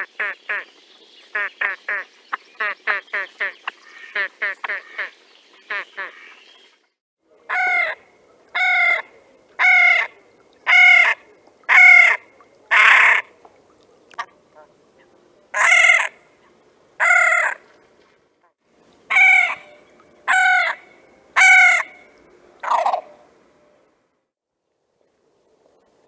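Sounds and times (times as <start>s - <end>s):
bird giving harsh calls: 17.0s - 17.6s.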